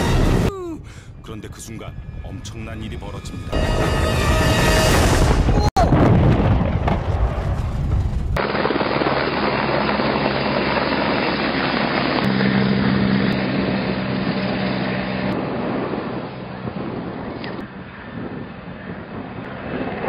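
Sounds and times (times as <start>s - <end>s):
loud rumble of impact: 3.7s - 9.0s
helicopter rotor and engine drone: 8.4s - 20.0s.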